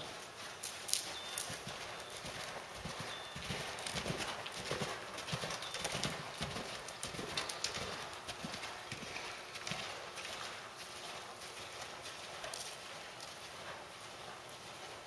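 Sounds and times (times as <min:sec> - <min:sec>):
horse hoofbeats on dirt: 0:00.0 - 0:15.0.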